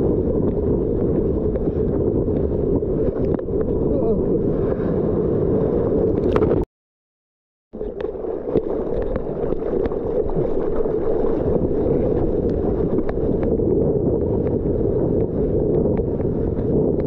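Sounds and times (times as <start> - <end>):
wind on microphone: 0.0 - 6.7, 7.8 - 17.0
water rushing past surfboard: 7.8 - 13.6.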